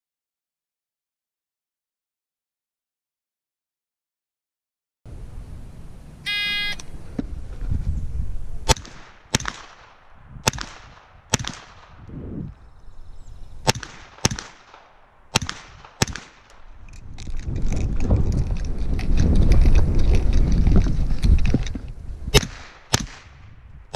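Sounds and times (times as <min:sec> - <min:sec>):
low noise: 0:05.1 - 0:08.7
electronic timer beep: 0:06.3 - 0:06.8
gunshots: 0:08.6 - 0:12.1, 0:13.6 - 0:16.7, 0:22.3 - 0:23.4.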